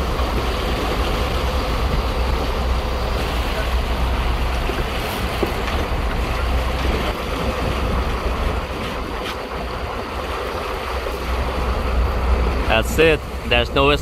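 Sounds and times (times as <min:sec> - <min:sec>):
boat engine rumble: 0:00.0 - 0:14.0
sea waves washing: 0:00.0 - 0:14.0
wind buffeting microphone: 0:00.0 - 0:14.0.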